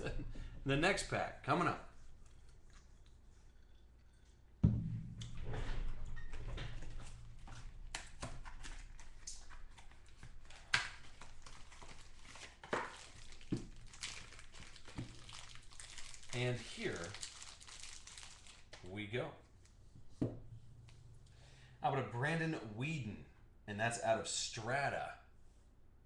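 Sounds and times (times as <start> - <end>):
sharp thump: 4.6 - 6.0
foil wrappers rustling and crinkling: 7.4 - 18.9.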